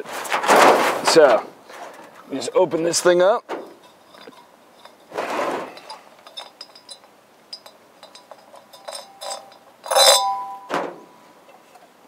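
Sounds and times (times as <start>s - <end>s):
light metallic clinks and rattles: 3.6s - 11.9s
ringing metal clank: 5.7s - 11.2s.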